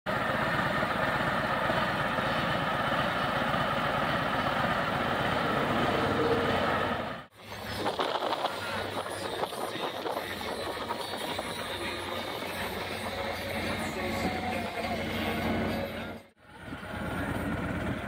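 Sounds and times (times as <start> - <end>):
motorcycle engine idling: 0.1 - 6.4, 11.1 - 18.0.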